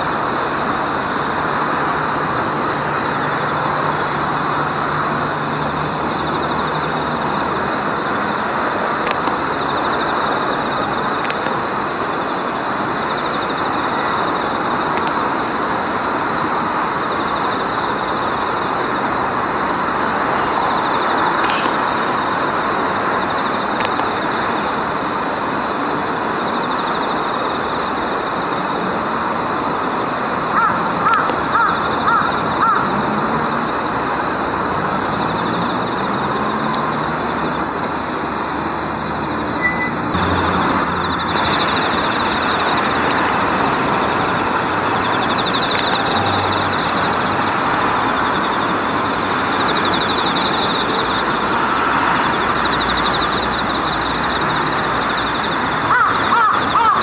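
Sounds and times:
steady traffic noise: 0.0 - 57.0
crow cawing: 30.6 - 33.0, 55.9 - 57.0.

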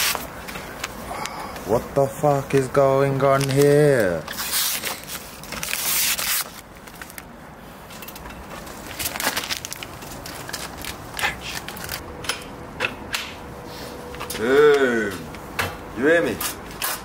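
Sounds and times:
plastic wrapping crinkling: 2.6 - 7.4, 8.6 - 12.0.

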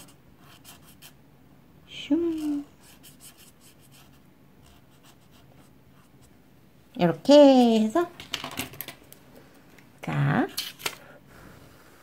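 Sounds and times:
felt-tip marker scratching on paper: 0.0 - 1.2, 2.2 - 6.2.

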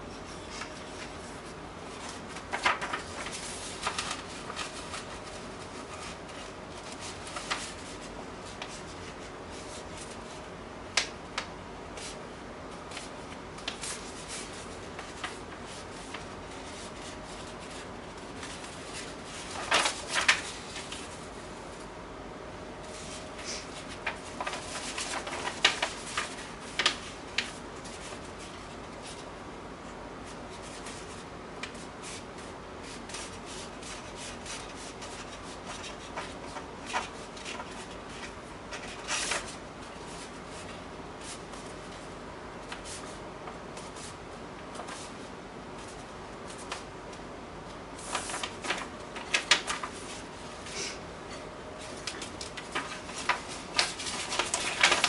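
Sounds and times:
paper being folded: 0.4 - 12.2, 12.9 - 21.9, 22.9 - 29.3, 30.2 - 46.9, 48.0 - 50.7, 51.8 - 55.0.

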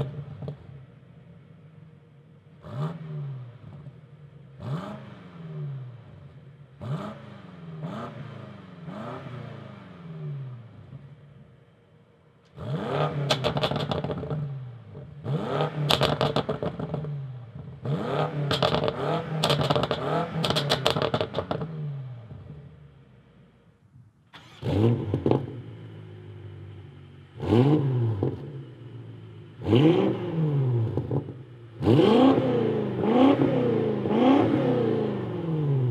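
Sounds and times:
car engine revving: 2.5 - 11.4, 12.5 - 22.8, 24.3 - 35.9
exhaust crackles and pops: 13.2 - 15.1, 15.8 - 17.8, 18.5 - 21.7.

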